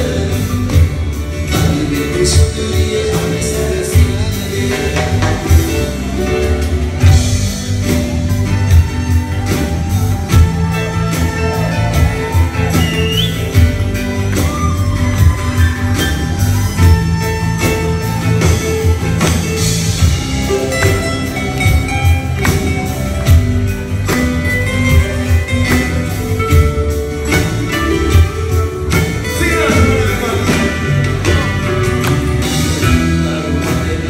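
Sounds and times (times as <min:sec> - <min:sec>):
person singing: 0:00.0 - 0:07.2, 0:27.4 - 0:34.0
acoustic guitars: 0:00.0 - 0:34.0
hand percussion: 0:00.0 - 0:34.0.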